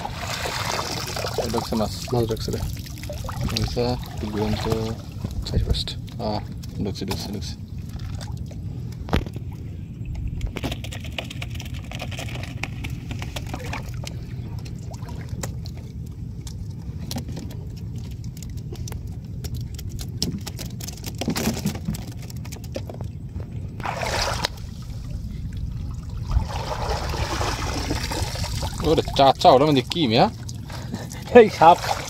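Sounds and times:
water splashing and trickling: 0.0s - 9.7s, 10.3s - 22.8s, 23.8s - 32.0s
wind rumble on microphone: 1.8s - 11.9s, 12.6s - 29.6s
light clicks and rattles: 15.4s - 23.2s.

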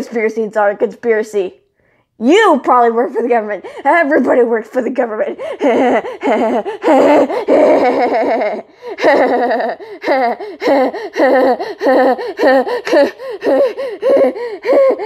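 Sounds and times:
person laughing: 5.4s - 15.0s.

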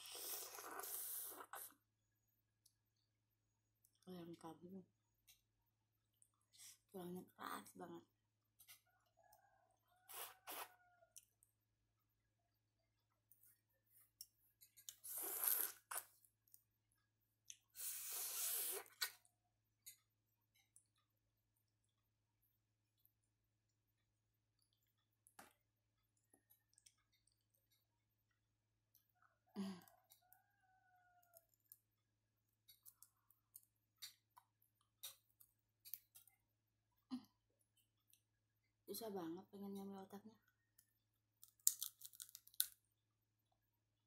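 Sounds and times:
wet mouth clicks: 14.7s - 16.2s, 17.5s - 19.3s
person gnawing bones: 41.4s - 42.8s.

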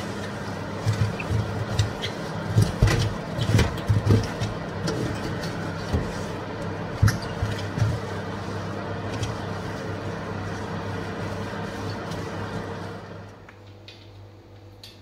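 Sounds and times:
cloth wiping inside oven: 0.0s - 13.4s
steady low hum: 0.0s - 15.0s.

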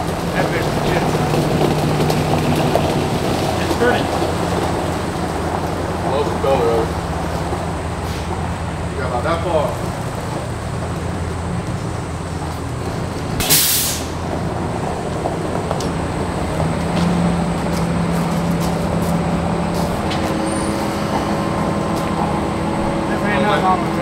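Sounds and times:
truck engine running: 0.0s - 24.0s
sharp air hiss: 13.4s - 14.2s.

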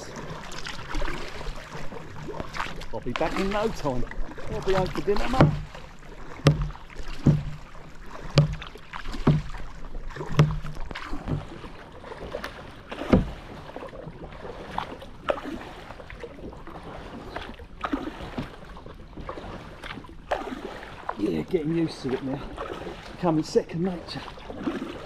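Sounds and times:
kayak paddle splashing: 0.0s - 25.0s
paddle knocks: 0.1s - 13.8s.

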